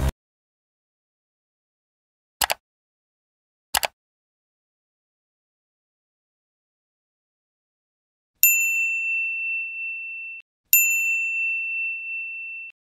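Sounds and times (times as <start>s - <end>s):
notification bell ding: 8.4s - 12.8s.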